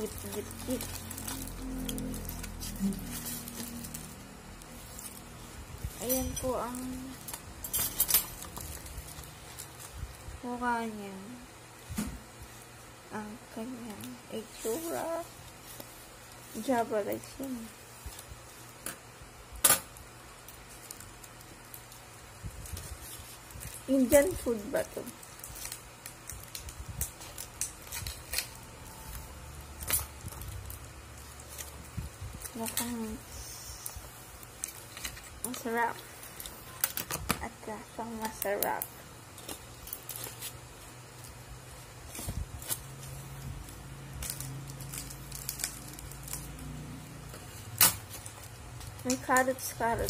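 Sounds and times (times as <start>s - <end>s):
aluminium foil crinkling: 0.0s - 50.0s
low steady hum: 0.0s - 50.0s.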